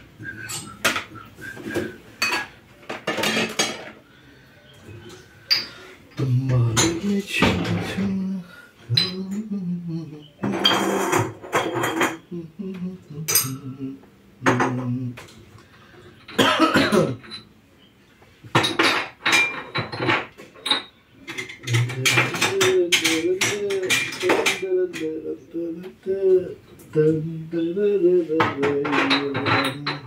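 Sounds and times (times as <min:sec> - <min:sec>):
dishes clinking and clattering: 0:00.0 - 0:04.0, 0:04.8 - 0:08.2, 0:08.9 - 0:09.5, 0:10.4 - 0:12.4, 0:13.2 - 0:13.8, 0:14.4 - 0:15.3, 0:16.1 - 0:17.6, 0:18.5 - 0:26.0, 0:26.6 - 0:30.0.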